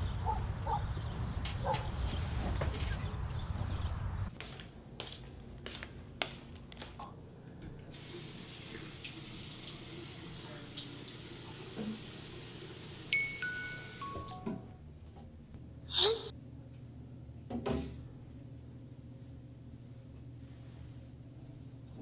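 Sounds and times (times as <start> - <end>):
faucet water running: 7.9 - 14.3.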